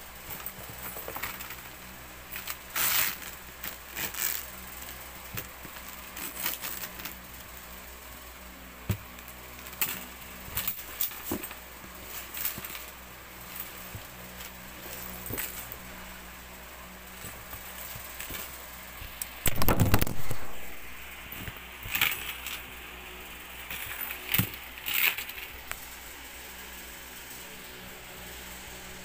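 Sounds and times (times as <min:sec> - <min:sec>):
handbag rustling: 0:00.2 - 0:07.7, 0:09.0 - 0:22.7.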